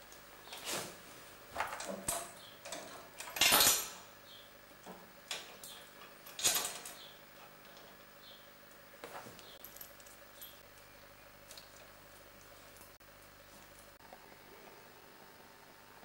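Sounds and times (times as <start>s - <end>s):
metal tools clinking and scraping: 5.3s - 8.0s.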